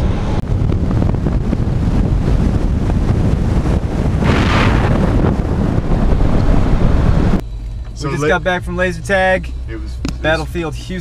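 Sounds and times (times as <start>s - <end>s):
wind buffeting microphone: 0.0s - 7.4s
low road rumble: 0.0s - 11.0s.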